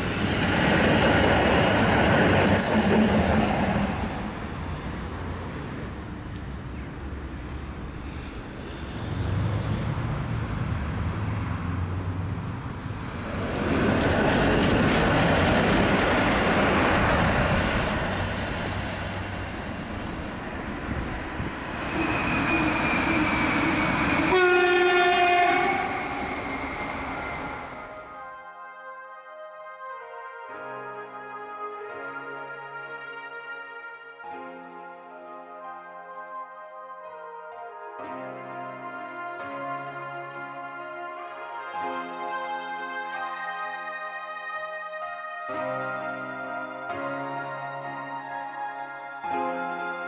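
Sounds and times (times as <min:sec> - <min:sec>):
tram wheels rumbling on rails: 0:00.0 - 0:28.1
pitched horn tone: 0:21.8 - 0:28.2.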